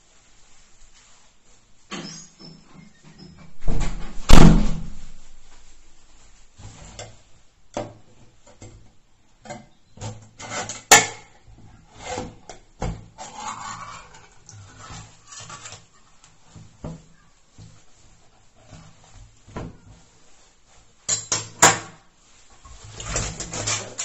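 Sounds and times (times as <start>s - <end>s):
loud thump: 3.6s - 5.2s
metal utensil scraping: 13.1s - 16.1s.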